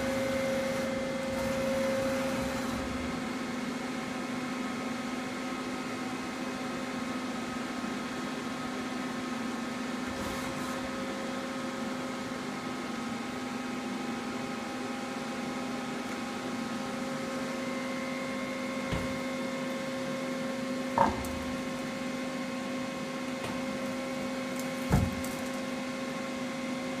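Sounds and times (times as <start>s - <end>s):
lathe humming: 0.0s - 3.4s.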